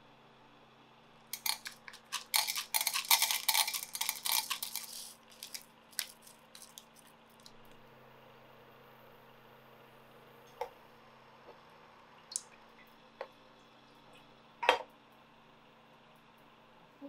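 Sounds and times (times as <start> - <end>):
wax pellets rattling into jug: 1.4 - 7.5.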